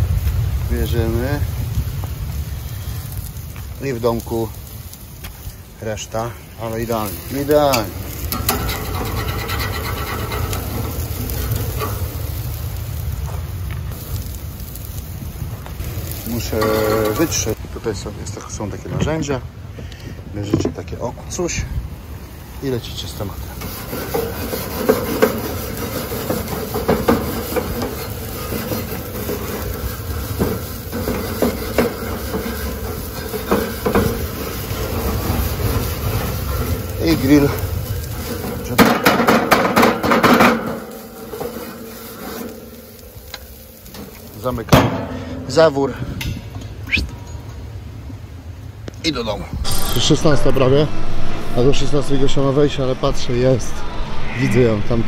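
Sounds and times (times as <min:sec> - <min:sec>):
steady low rumble: 0:00.0 - 0:20.3, 0:48.0 - 0:55.0
wind buffeting microphone: 0:00.0 - 0:20.4, 0:49.4 - 0:55.0
faint hiss: 0:00.0 - 0:55.0
grill brush scraping metal grates: 0:05.4 - 0:12.6, 0:16.1 - 0:17.6, 0:22.9 - 0:45.7
brush clacking against bars: 0:06.9 - 0:12.0, 0:23.6 - 0:42.7.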